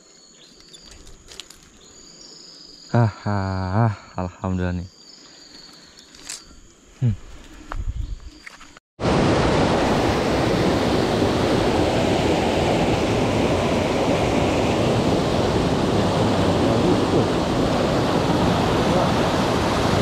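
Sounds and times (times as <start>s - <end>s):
river rapids rushing over boulders: 14.0s - 20.0s.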